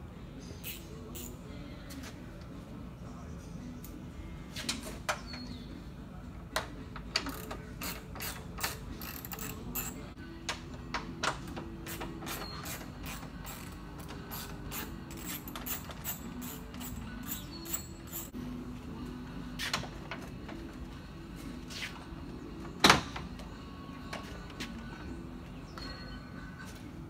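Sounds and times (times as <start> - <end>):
faint background music: 0.0 - 27.0
ratchet wrench clicking: 0.6 - 1.4, 7.2 - 10.0, 11.9 - 18.3.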